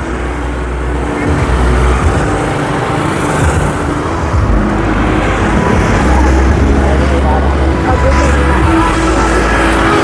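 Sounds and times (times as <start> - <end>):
low traffic rumble: 0.0 - 10.0
vehicles passing: 0.0 - 10.0.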